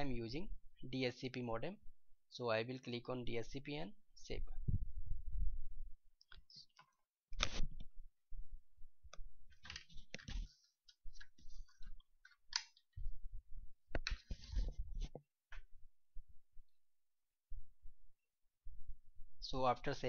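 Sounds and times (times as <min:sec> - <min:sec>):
irregular clicks: 0:09.1 - 0:12.9.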